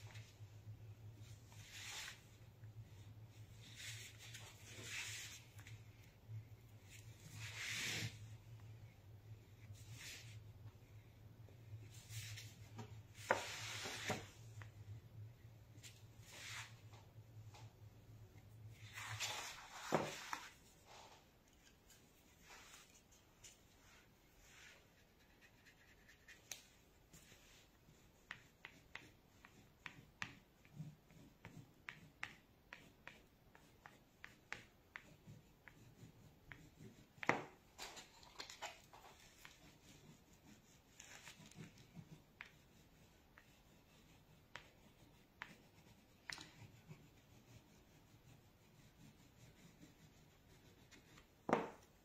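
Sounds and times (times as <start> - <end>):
crayon scratching on paper: 24.8 - 37.5, 39.0 - 51.3.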